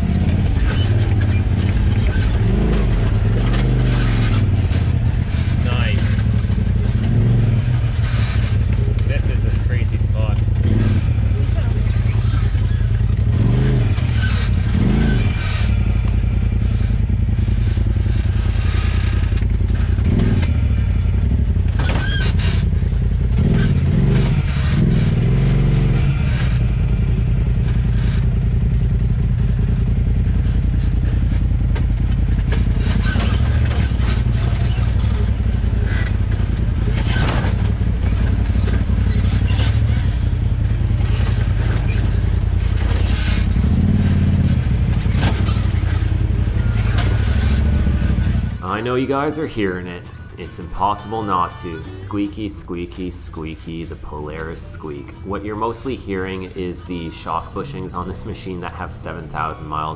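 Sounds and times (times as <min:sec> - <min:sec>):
chassis knocks and clatter: 0:00.0 - 0:09.1, 0:30.4 - 0:48.6
off-road vehicle engine: 0:00.0 - 0:59.9
suspension squeaks: 0:00.0 - 0:59.9.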